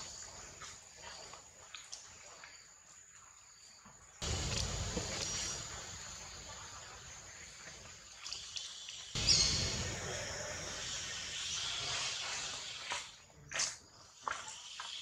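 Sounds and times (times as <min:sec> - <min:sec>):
forest background noise: 0:00.0 - 0:15.0
faint bird chirp: 0:08.2 - 0:12.6.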